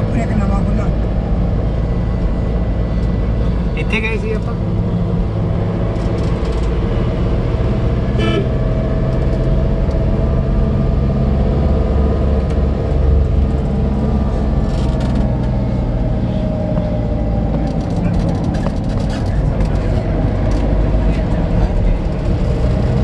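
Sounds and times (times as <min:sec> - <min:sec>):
vehicle engine and road noise: 0:00.0 - 0:23.0
short horn toot: 0:08.2 - 0:08.6.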